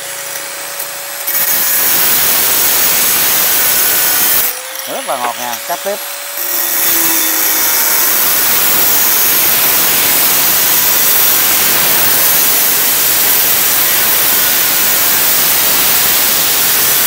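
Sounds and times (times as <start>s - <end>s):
angle grinder cutting: 0.0s - 17.0s.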